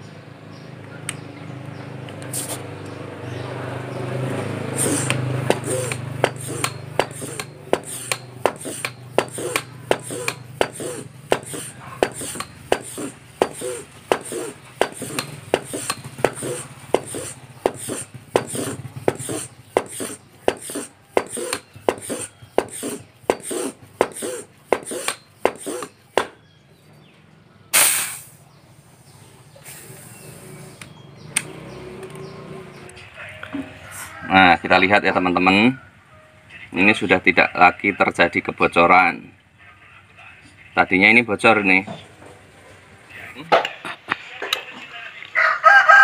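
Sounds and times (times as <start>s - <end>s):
hand pump strokes: 2.2s - 2.7s, 4.6s - 26.4s
short loud air hiss: 2.3s - 2.7s, 27.7s - 28.4s, 29.6s - 30.8s.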